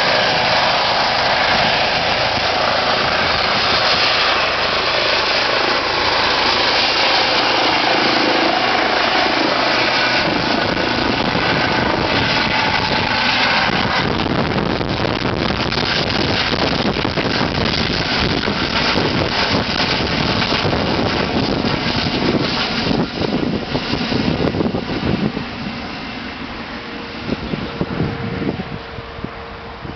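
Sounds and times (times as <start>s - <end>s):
helicopter turbine whine and rotor: 0.0s - 29.9s.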